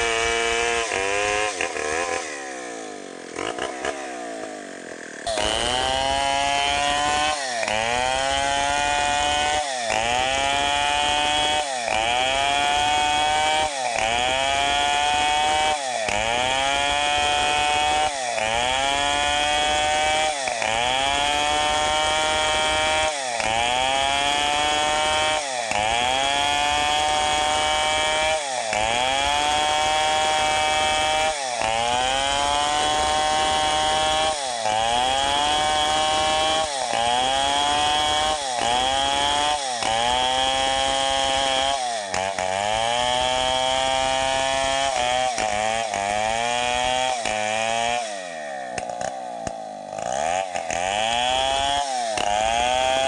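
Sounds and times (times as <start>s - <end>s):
chainsaw cutting log: 0.0s - 53.0s.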